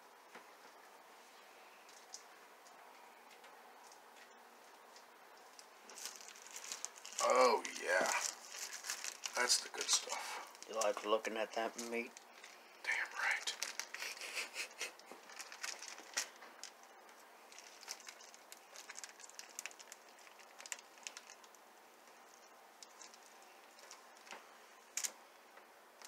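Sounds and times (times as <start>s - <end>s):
plastic wrapper crinkling: 5.5s - 25.2s.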